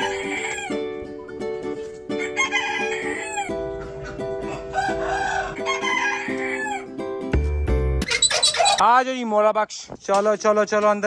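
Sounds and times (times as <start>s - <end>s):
chickens crowing and clucking: 0.0s - 7.2s
plucked-string background music: 0.0s - 8.3s.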